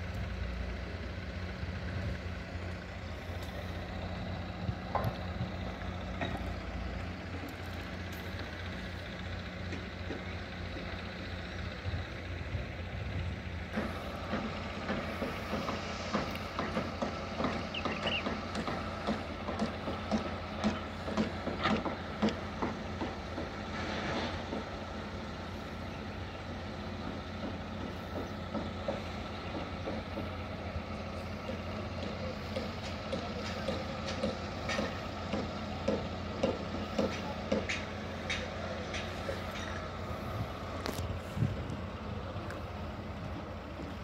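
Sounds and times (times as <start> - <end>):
heavy machinery engine running: 0.0 - 44.0
knocks and clanks: 13.7 - 24.8, 31.4 - 40.3.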